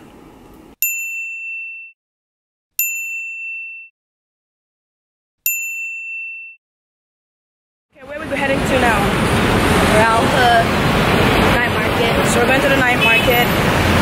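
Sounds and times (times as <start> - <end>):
bright bell ding: 0.8 - 2.0, 2.8 - 3.9, 5.4 - 6.6.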